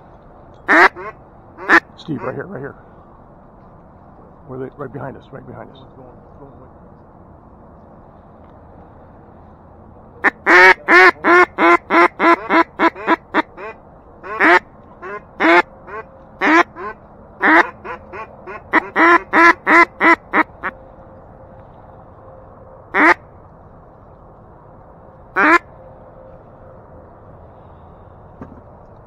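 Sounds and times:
duck call quacks: 0.7 - 2.4, 10.2 - 20.7, 22.9 - 23.2, 25.4 - 25.6.

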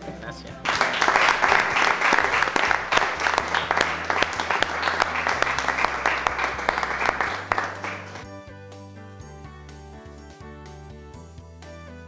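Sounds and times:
people applauding: 0.6 - 8.3.

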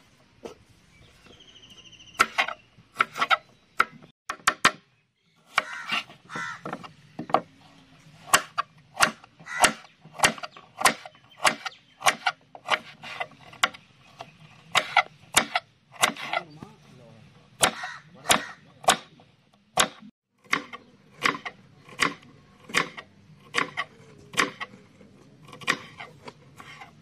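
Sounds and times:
knife chopping on wooden board: 5.5 - 7.5, 8.2 - 16.4, 17.6 - 19.2, 19.8 - 24.8, 25.4 - 26.9.

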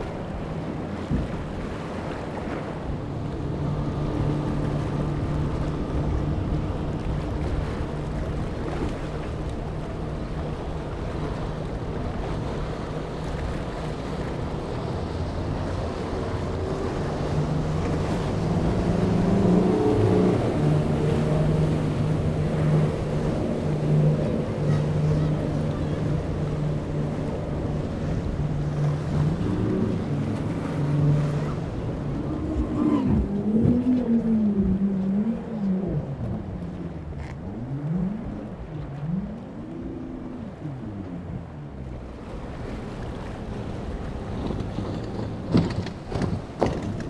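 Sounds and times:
outboard motor drone: 0.0 - 47.0
wind: 0.0 - 47.0.

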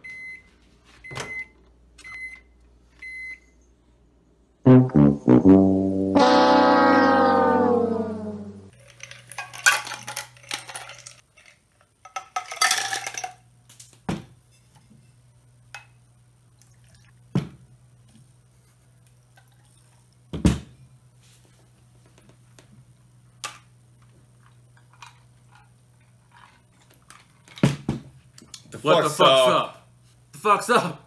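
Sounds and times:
drinkware clattering and clinking: 8.8 - 13.4.

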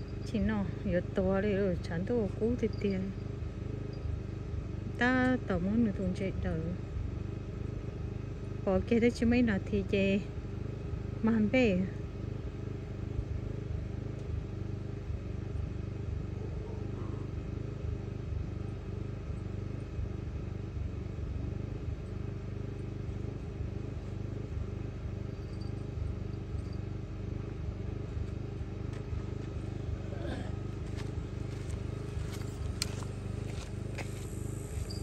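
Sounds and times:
constant hum: 0.0 - 35.0.

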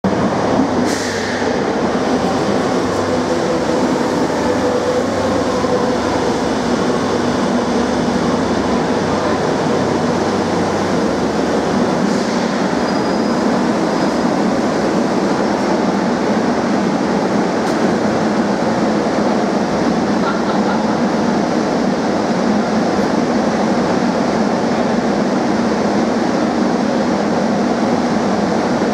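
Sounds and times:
train rumbling and braking: 0.0 - 28.9
high brake squeal: 12.1 - 13.5.

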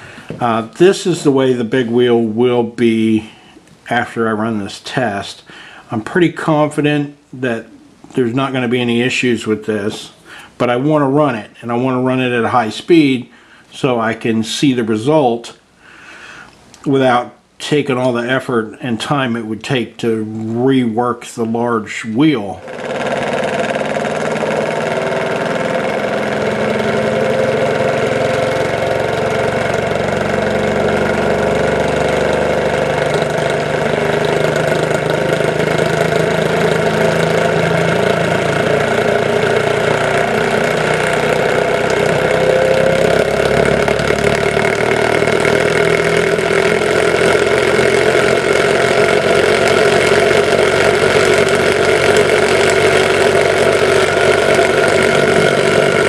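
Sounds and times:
motor whirring hum: 22.6 - 56.0.

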